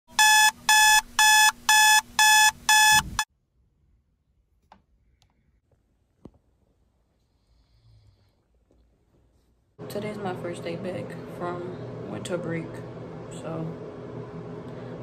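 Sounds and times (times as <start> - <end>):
electronic alarm beeping: 0.1 - 3.3.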